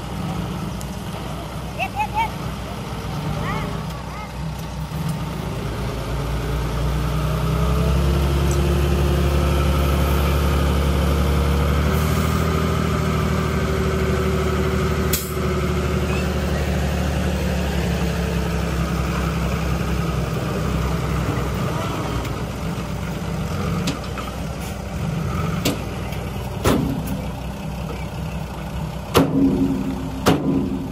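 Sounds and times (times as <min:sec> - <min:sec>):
diesel engine running: 0:00.0 - 0:30.9.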